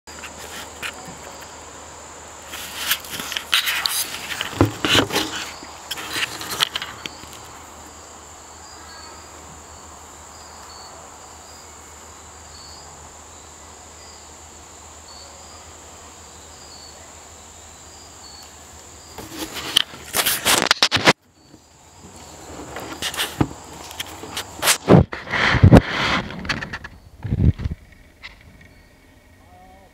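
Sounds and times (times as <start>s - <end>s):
loud crackling rustles: 0.1s - 1.7s, 2.3s - 8.0s, 18.4s - 29.3s
crickets trilling: 0.1s - 29.9s
faint chirps: 6.8s - 19.2s, 27.8s - 29.9s.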